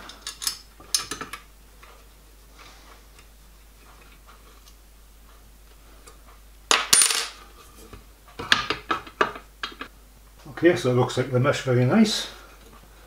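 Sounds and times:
small clicks of steel parts: 0.0 - 1.9.

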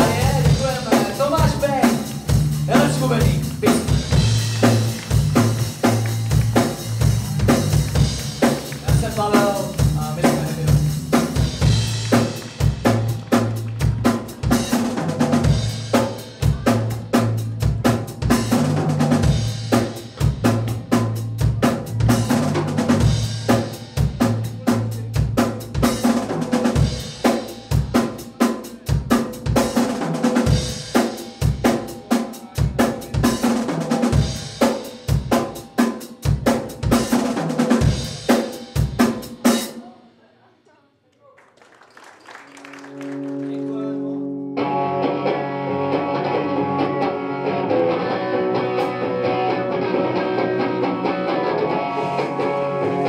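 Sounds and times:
bass guitar line: 0.0 - 28.2, 43.0 - 53.0
fast rock drum beat: 0.0 - 39.9
electric guitar: 42.9 - 53.0.

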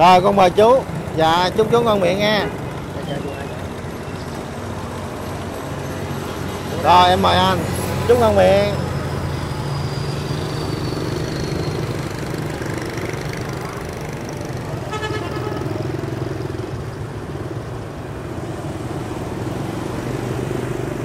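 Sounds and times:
road traffic engines: 0.0 - 21.0
short horn beep: 14.9 - 15.7.

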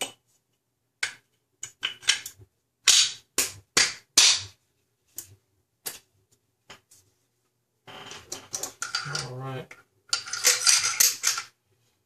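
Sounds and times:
rifle parts clacking metal: 8.3 - 9.4, 10.1 - 11.5.

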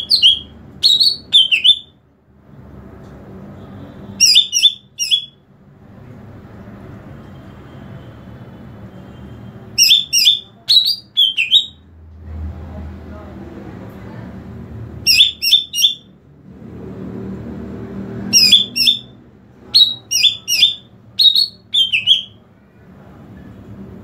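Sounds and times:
bird whistling calls: 0.0 - 1.9, 4.2 - 5.4, 9.8 - 11.8, 15.1 - 16.1, 18.3 - 19.1, 19.8 - 22.4.

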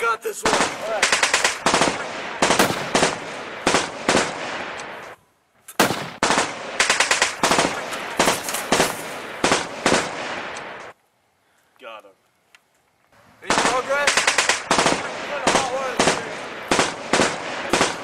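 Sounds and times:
automatic gunfire: 0.4 - 4.8, 5.8 - 10.8, 13.5 - 18.0.

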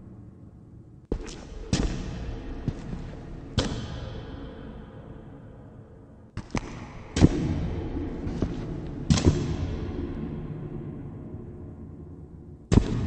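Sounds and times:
low background drone: 0.0 - 13.0
heavy echoing footsteps: 1.1 - 11.5.

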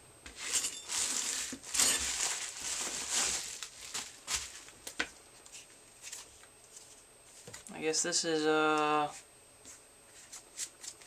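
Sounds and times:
bubble wrap crinkling: 0.4 - 7.0.

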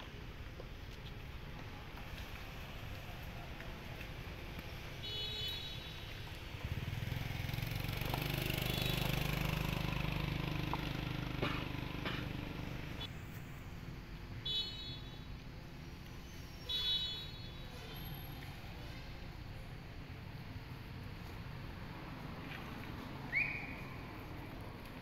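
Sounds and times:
vehicle engine passing: 6.5 - 13.3.

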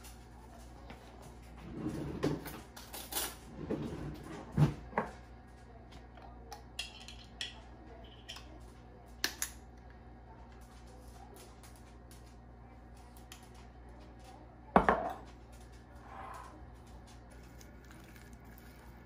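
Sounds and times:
objects set down on counter: 14.8 - 15.2.

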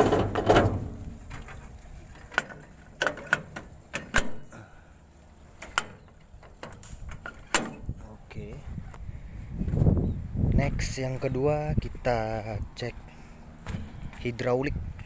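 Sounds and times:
engine hood shutting with thud: 0.0 - 1.4, 3.1 - 4.5
metal latch clicks and knocks: 0.0 - 4.5, 5.6 - 8.0.

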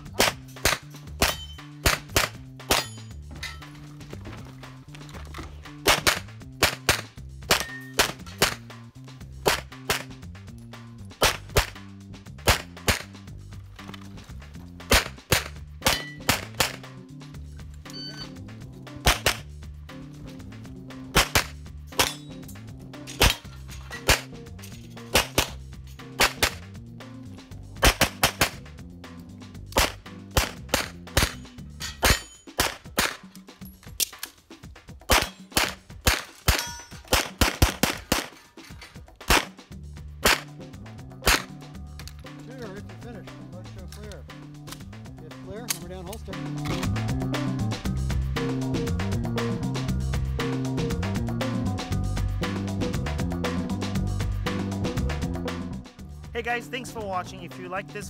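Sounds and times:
background music: 0.0 - 58.0
pistol shots: 0.2 - 2.9, 5.8 - 8.6, 12.5 - 13.1, 14.9 - 16.8, 19.0 - 19.4, 21.2 - 22.2, 25.1 - 25.6, 26.2 - 26.6, 27.8 - 28.6, 29.7 - 31.4, 32.0 - 33.3, 35.1 - 38.4, 39.2 - 39.6, 40.2 - 40.5, 41.2 - 41.5.

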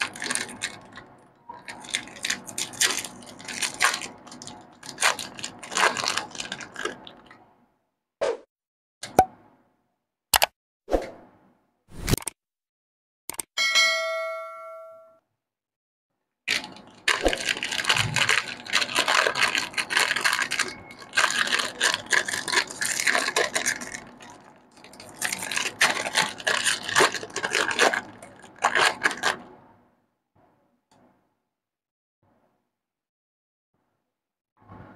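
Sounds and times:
plastic wrapper crinkling: 0.0 - 7.3, 16.5 - 29.5.

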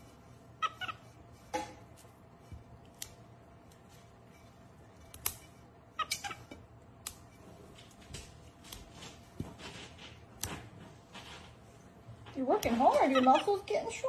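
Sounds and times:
monkey squeaky calls: 0.6 - 1.1, 6.0 - 6.5
green beans snapping: 2.8 - 3.9, 5.1 - 5.4, 7.0 - 7.3.

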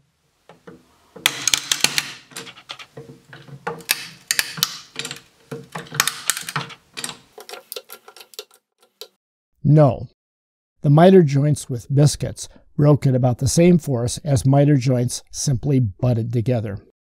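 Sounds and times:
wood joint cracking apart: 0.5 - 9.2.

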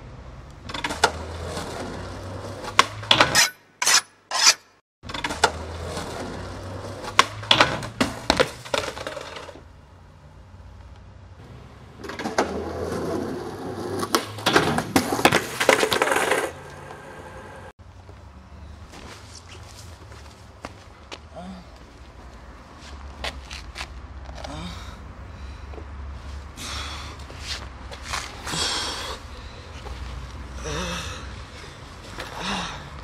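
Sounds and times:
skateboard wheels rolling on concrete: 0.0 - 3.4, 5.0 - 33.0
skateboard clacking on stairs: 12.0 - 17.0.

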